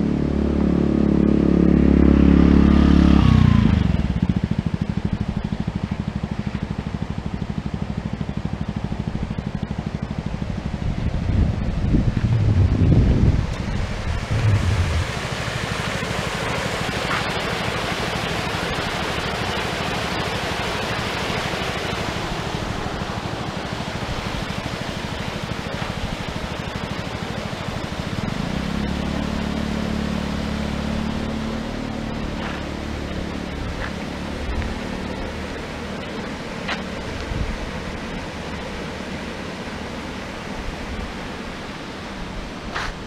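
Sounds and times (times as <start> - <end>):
low steady hum: 0.0 - 42.7
steady rushing outdoor noise: 0.0 - 43.0
wind buffeting microphone: 10.3 - 16.1.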